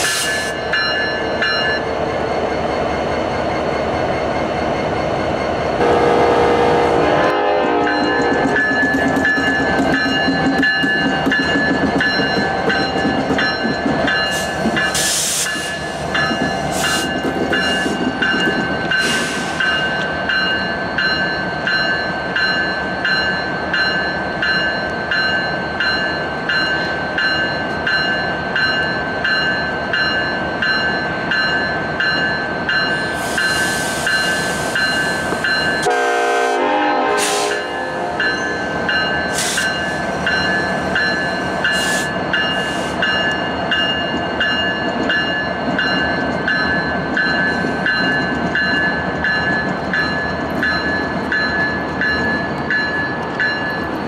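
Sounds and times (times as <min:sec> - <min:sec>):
locomotive bell ringing: 0:00.0 - 0:03.6, 0:07.2 - 0:36.2, 0:37.4 - 0:54.0
air brake hissing: 0:14.4 - 0:15.9, 0:19.0 - 0:19.8, 0:33.2 - 0:35.4, 0:37.2 - 0:37.6, 0:39.3 - 0:39.9.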